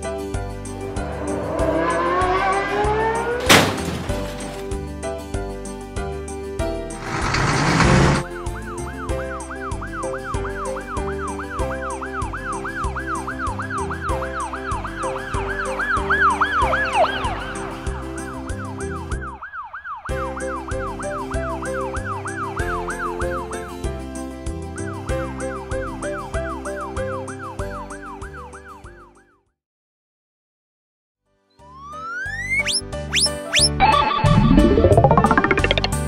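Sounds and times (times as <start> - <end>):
background music: 0.0 - 19.4, 31.6 - 36.0
cartoon siren yelping: 31.8 - 35.2.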